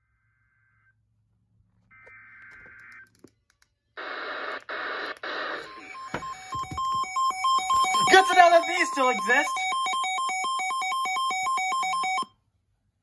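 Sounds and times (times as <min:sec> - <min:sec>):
digital data tones: 0:05.6 - 0:12.3
two-tone alert beeps: 0:05.7 - 0:12.3.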